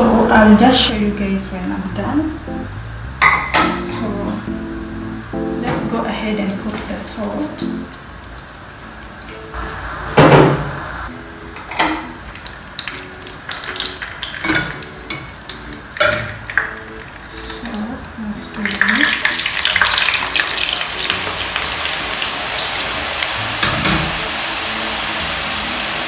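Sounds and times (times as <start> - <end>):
oil sizzling deep-frying: 0.1 - 26.0
metal cookware clinking: 3.2 - 4.1, 12.8 - 17.9.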